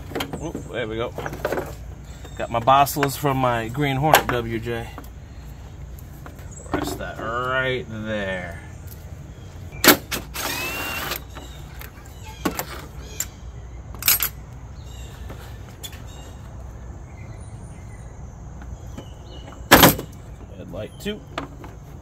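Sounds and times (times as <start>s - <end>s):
power tool whirr: 10.1s - 11.4s.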